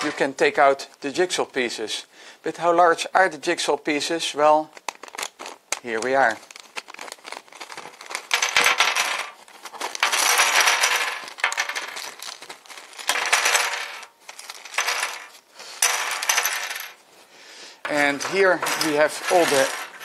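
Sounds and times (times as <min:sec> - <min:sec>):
plastic puzzle pieces clattering: 0:04.8 - 0:17.0, 0:17.8 - 0:20.0.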